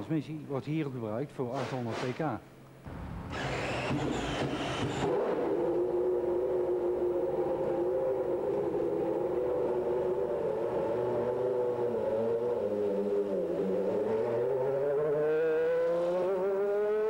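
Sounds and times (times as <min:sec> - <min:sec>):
short burst of noise: 0:02.8 - 0:05.4
racing car engine running: 0:02.9 - 0:15.4.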